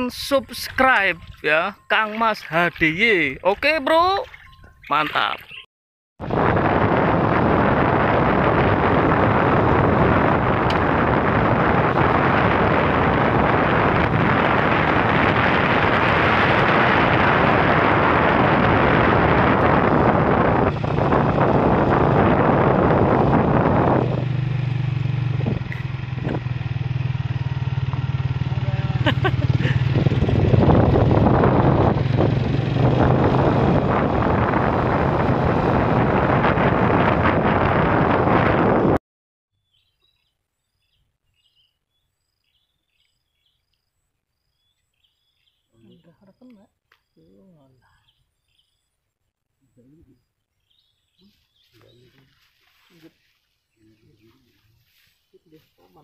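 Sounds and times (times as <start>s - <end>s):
wind noise on microphone: 0.0s - 1.8s, 6.2s - 39.0s
road noise: 6.2s - 39.0s
motorcycle engine running: 6.3s - 39.0s.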